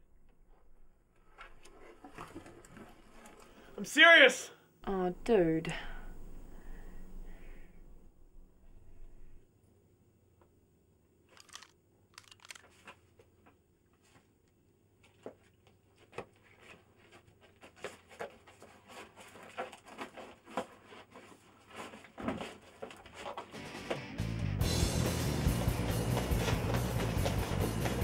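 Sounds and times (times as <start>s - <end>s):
shuffling footsteps: 24.6s - 28.0s.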